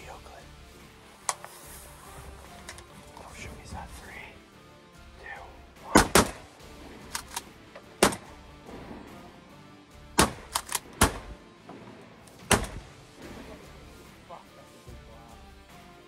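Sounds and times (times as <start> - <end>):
sharp clicks and knocks: 10.2 - 11.3.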